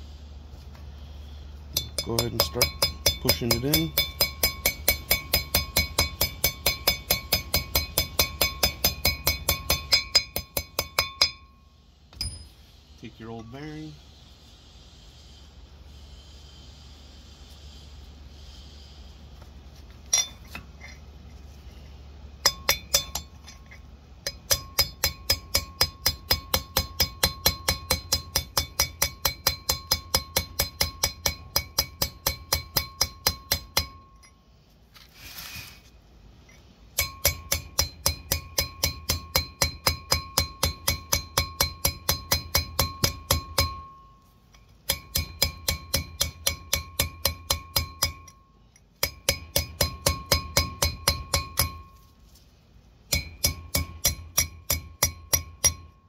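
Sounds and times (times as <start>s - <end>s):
hammer striking metal: 1.7s - 11.6s, 22.4s - 34.4s, 36.9s - 52.1s, 53.1s - 56.0s.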